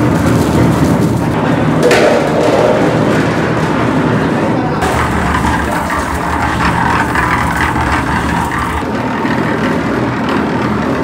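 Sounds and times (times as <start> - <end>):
rotating drum mixer humming: 4.8 - 11.0.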